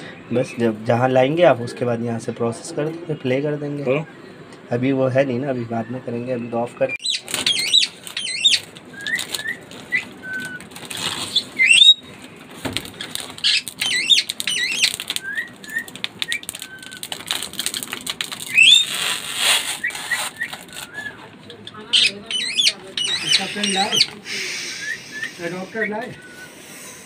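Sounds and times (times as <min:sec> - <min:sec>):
birds chirping: 0:00.0 - 0:27.0
plastic film crinkling: 0:07.1 - 0:21.4.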